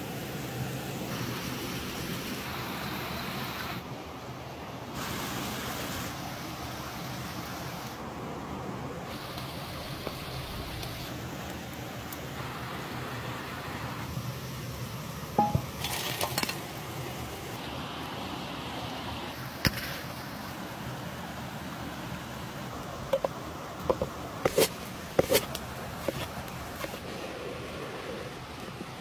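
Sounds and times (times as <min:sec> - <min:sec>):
knife slicing tomato: 0:23.9 - 0:27.0.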